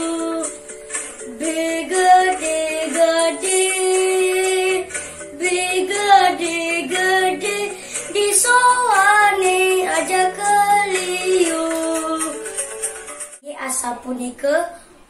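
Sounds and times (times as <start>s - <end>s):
boy singing: 0.0s - 0.6s, 1.3s - 12.4s.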